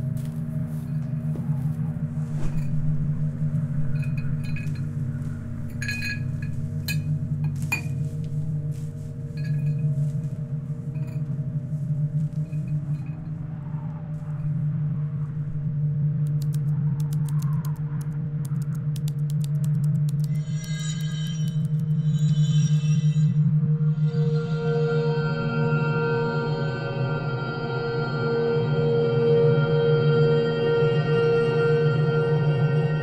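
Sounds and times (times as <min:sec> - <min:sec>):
low drone: 0:00.0 - 0:33.0
glassy clinks and chimes: 0:03.9 - 0:04.9, 0:05.6 - 0:08.0, 0:09.4 - 0:10.0
rapid high ticks: 0:16.2 - 0:22.0.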